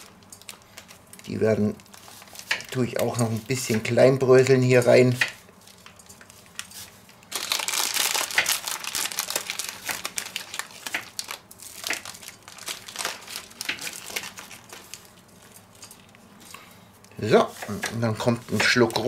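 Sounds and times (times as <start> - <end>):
plastic bag crinkling: 0.0 - 4.8, 5.6 - 16.2
nuts crackling crushed: 5.8 - 16.2.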